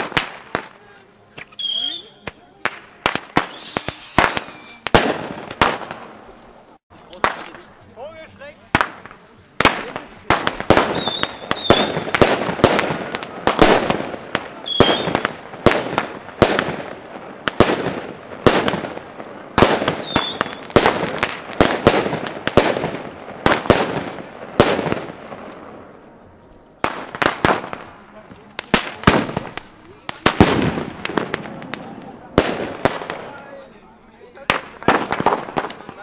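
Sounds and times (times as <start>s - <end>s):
firework bangs: 0.0s - 7.7s, 8.6s - 36.0s
firework whistles: 1.4s - 2.4s, 3.3s - 5.2s, 10.8s - 12.1s, 14.6s - 15.3s, 19.9s - 20.8s.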